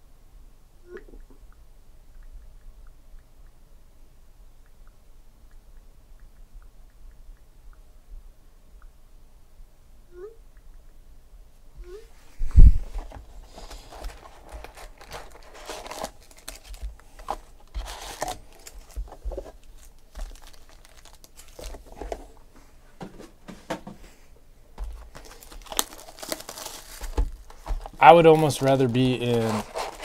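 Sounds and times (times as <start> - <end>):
foil packs crinkling: 13.0 - 22.4, 24.8 - 30.0.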